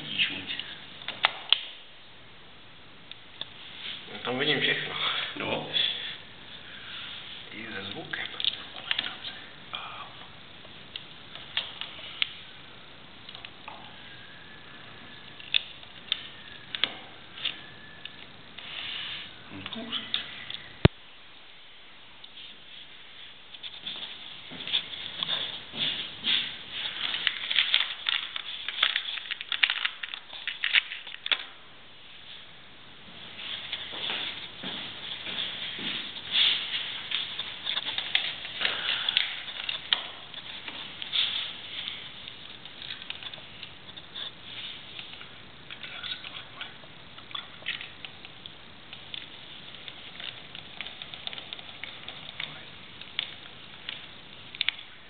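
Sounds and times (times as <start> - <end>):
hands handling wires and screwdriver: 23.6 - 31.5, 35.0 - 45.2.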